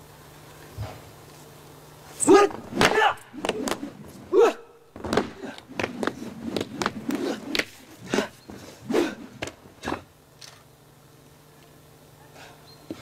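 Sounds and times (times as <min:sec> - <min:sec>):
faint steady hum: 0:00.0 - 0:13.0
sharp slaps and snaps of strikes: 0:02.4 - 0:03.9.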